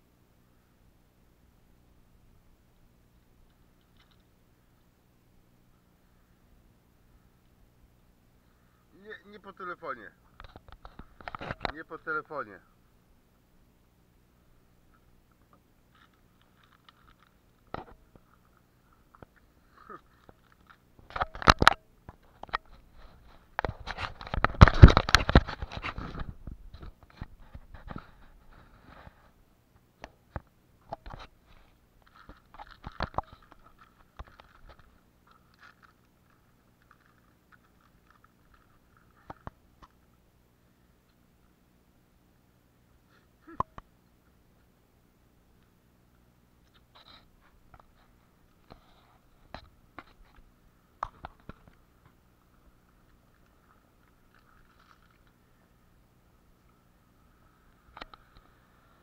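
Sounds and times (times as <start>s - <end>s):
scratching and rustling: 15.9s - 29.4s, 30.3s - 40.1s, 46.6s - 55.7s.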